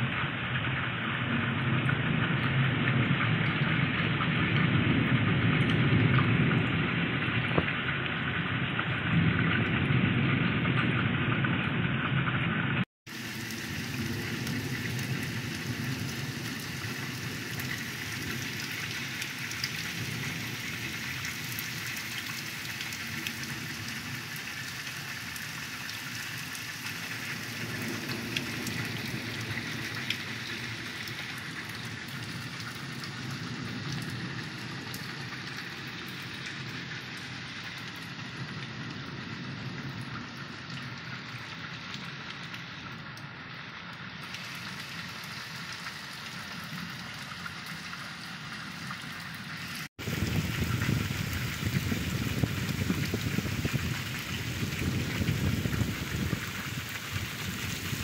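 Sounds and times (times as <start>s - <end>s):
heavy rain hissing: 12.7s - 58.0s.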